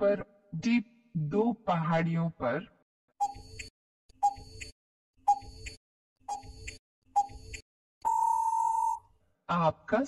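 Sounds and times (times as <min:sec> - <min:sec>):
countdown timer ticking beep: 0:03.2 - 0:04.7, 0:05.3 - 0:09.0.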